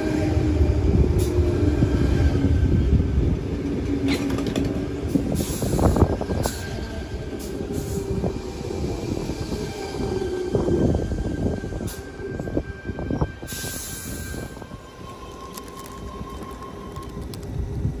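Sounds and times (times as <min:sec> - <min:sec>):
train rumble: 0:00.0 - 0:18.0.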